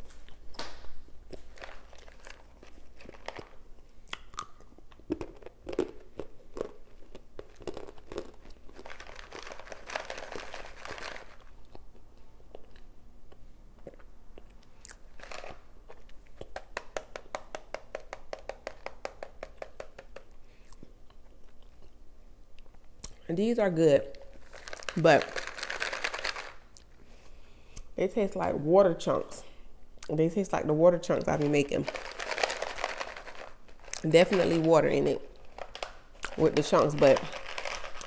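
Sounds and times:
crunchy chewing: 1.3s - 16.6s
rustling: 24.3s - 27.4s, 31.3s - 38.0s.

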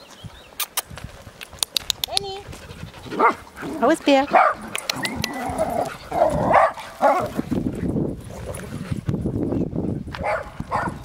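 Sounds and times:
dog barking: 3.2s - 3.4s, 4.3s - 4.7s, 6.2s - 7.3s, 10.2s - 11.0s.

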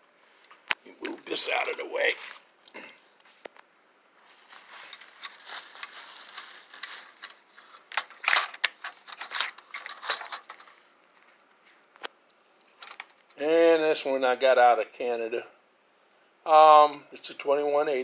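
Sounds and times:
rustling: 0.9s - 3.6s, 4.2s - 11.8s.

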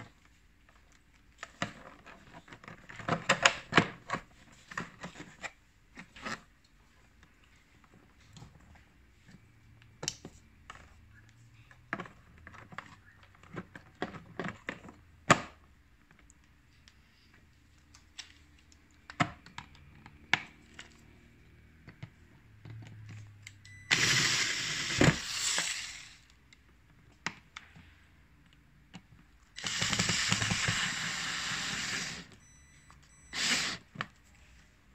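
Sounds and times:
cordless electric screwdriver running: 23.9s - 25.8s, 29.6s - 32.3s.

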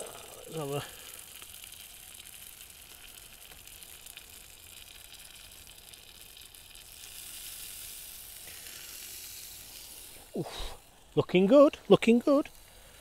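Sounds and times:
chicken sizzling on charcoal cooker: 0.0s - 13.0s.

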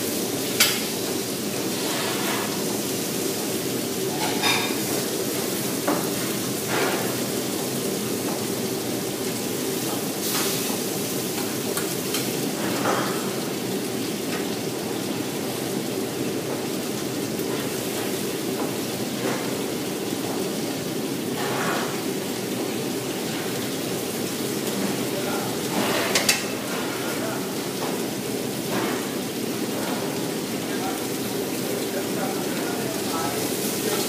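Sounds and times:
food frying in woks: 0.0s - 34.0s
metal spatula clinking on pans: 4.1s - 4.8s.

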